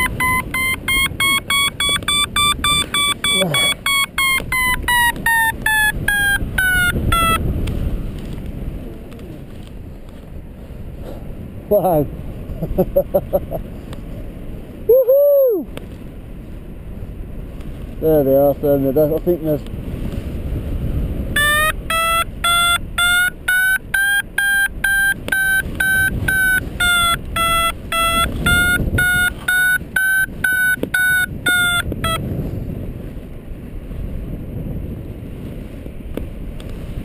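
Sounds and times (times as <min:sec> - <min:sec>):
variometer short beeps: 0:00.0 - 0:07.4, 0:21.4 - 0:32.2
wind on microphone: 0:00.0 - 0:12.8, 0:13.5 - 0:37.0.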